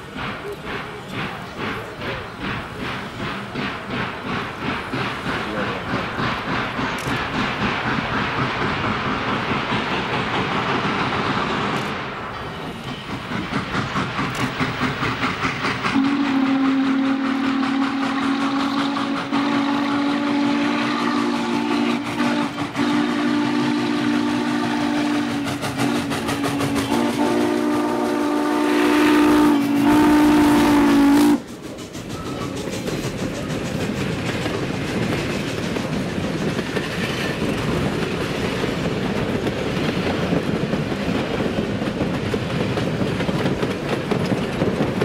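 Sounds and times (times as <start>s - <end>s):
steam locomotive chuffing: 0.0s - 45.0s
steam whistle blast: 15.9s - 31.5s.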